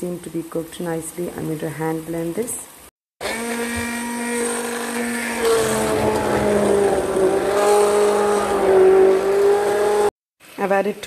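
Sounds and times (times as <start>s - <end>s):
hand blender motor whining: 3.2s - 10.2s.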